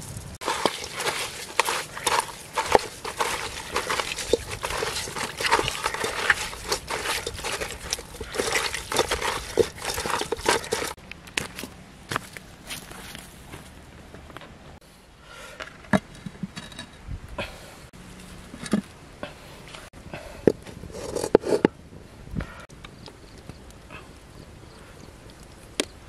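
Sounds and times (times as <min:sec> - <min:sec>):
hands mixing wet food: 0:00.4 - 0:11.0.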